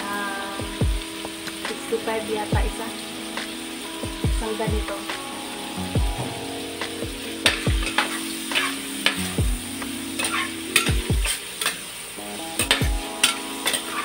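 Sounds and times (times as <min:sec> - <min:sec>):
steady sizzle: 0:00.0 - 0:14.0.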